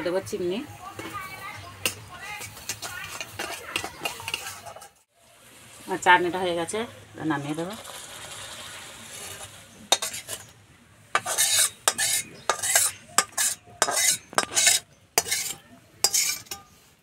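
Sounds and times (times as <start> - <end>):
metal spoon scraping metal pan: 1.0 - 5.1, 9.1 - 10.6, 11.2 - 16.8.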